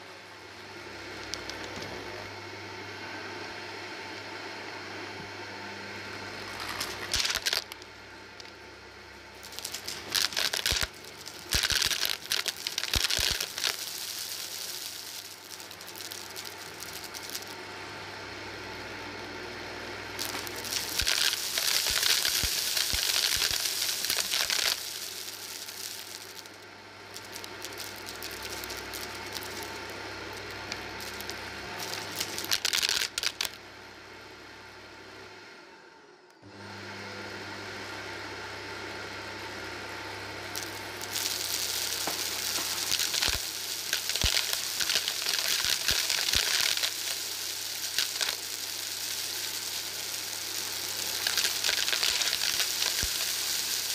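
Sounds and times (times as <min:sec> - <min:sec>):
vacuum cleaner humming: 0:00.0 - 0:53.9
granules crunching and rattling: 0:06.5 - 0:08.5, 0:09.4 - 0:17.6, 0:20.2 - 0:26.6, 0:27.2 - 0:33.6, 0:40.6 - 0:53.9.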